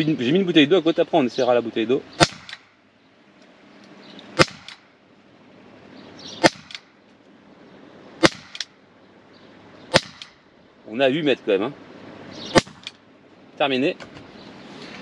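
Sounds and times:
pistol shots: 2.2s - 2.8s, 4.4s - 5.0s, 6.4s - 7.0s, 8.2s - 8.8s, 9.9s - 10.4s, 12.5s - 13.0s.

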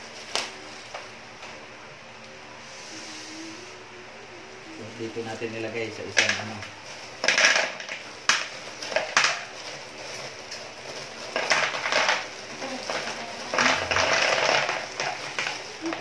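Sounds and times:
plastic bag crinkling: 4.9s - 16.0s
ceramic rings rattling: 6.2s - 16.0s.

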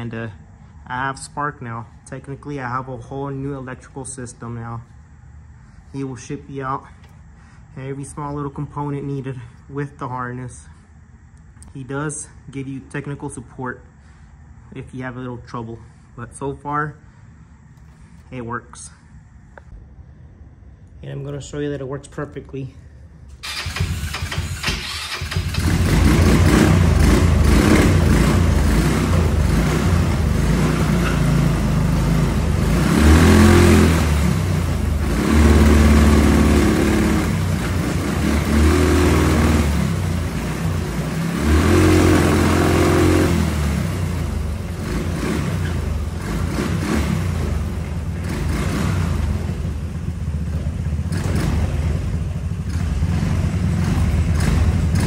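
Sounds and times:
buggy engine starting and revving: 23.3s - 55.0s.

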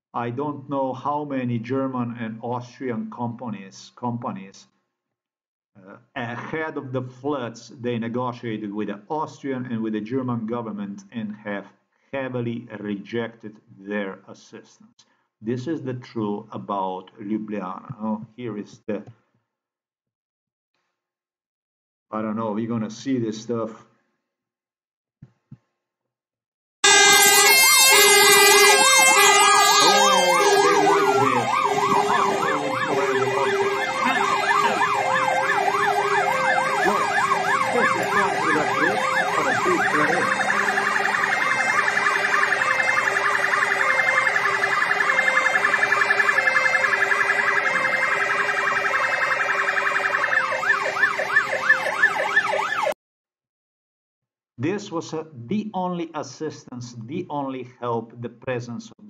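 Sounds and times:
fire engine sirens wailing: 26.8s - 53.0s
two-tone hi-lo siren: 26.8s - 53.0s.

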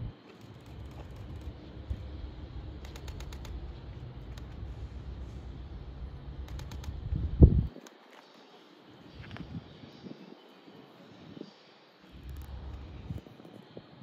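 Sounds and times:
distant electric train rumble: 0.0s - 7.9s, 12.1s - 13.2s.

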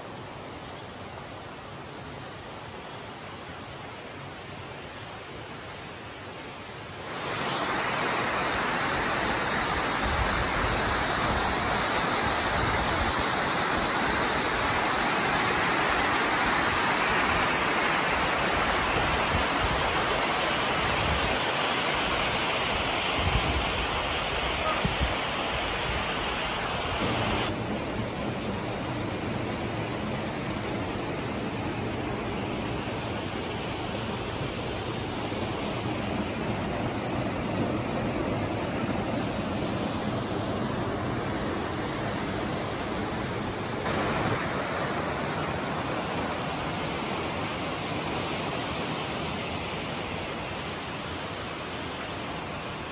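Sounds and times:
stream water rushing: 0.0s - 52.9s.

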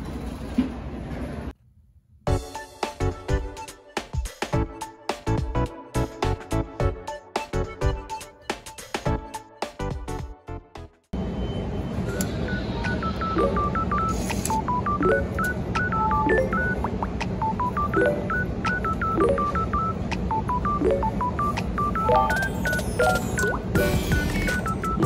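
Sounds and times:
short electronic beeps: 11.4s - 25.0s.

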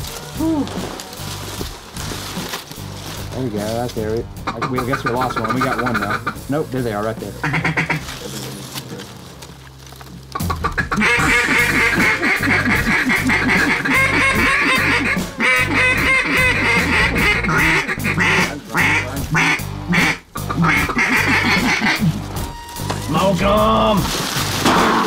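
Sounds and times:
low background music: 0.0s - 25.0s
duck calls quacking: 4.4s - 8.2s, 10.4s - 23.3s.

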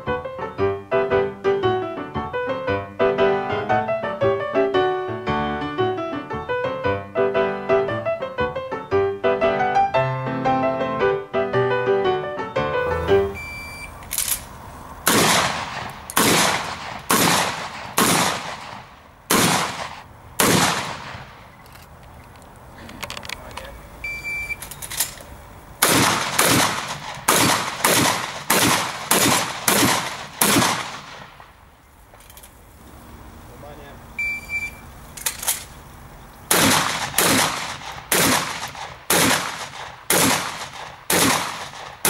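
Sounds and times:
high timer beep: 13.2s - 14.0s, 24.0s - 24.6s, 34.2s - 34.8s
shotgun shots: 15.0s - 21.4s, 25.8s - 31.5s, 36.5s - 42.0s.

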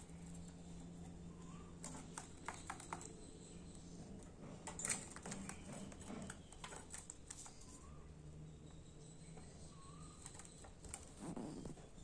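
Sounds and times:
budgerigars clicking and tapping: 1.8s - 3.5s.

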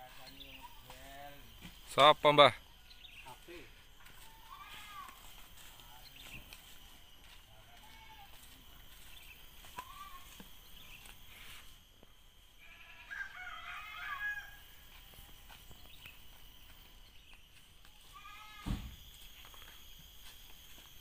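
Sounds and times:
rooster crowing: 12.6s - 15.1s.

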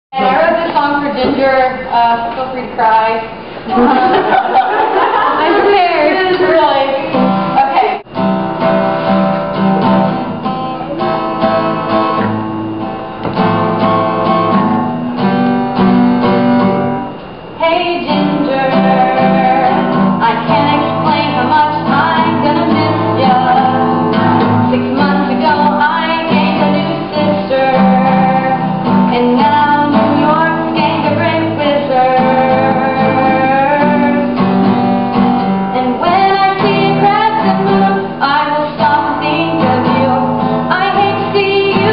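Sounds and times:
woman singing: 0.2s - 3.1s, 17.6s - 34.5s, 35.7s - 41.9s
acoustic guitar strumming: 0.2s - 41.9s.

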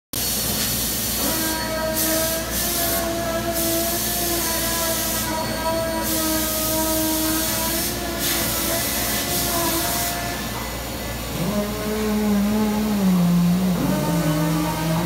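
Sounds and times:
router spindle whining: 11.2s - 15.0s.

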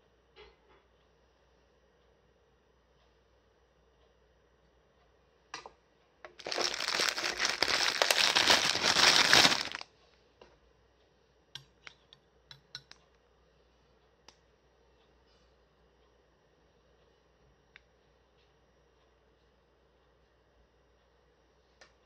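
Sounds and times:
packaging crinkling: 6.4s - 9.8s.

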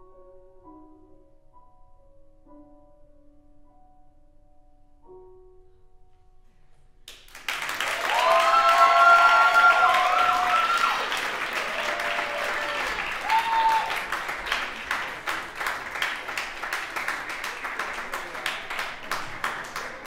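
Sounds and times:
audience applauding: 7.1s - 20.0s.

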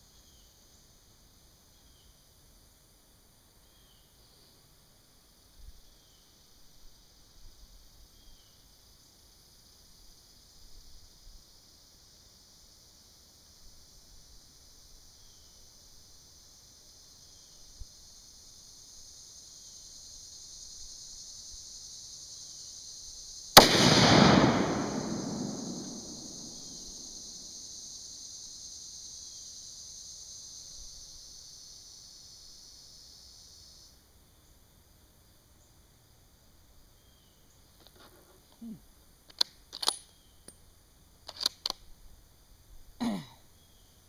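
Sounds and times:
insects chirring: 0.0s - 44.0s
rifle shot with echo: 23.6s - 27.0s.

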